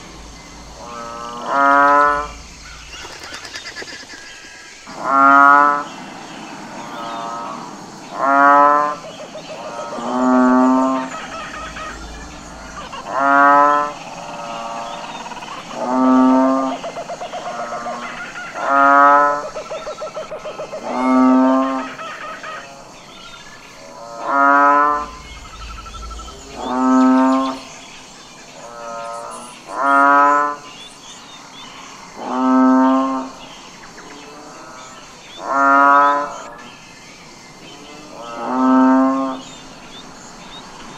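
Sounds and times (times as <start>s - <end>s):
bulls mooing: 4.9s - 16.8s.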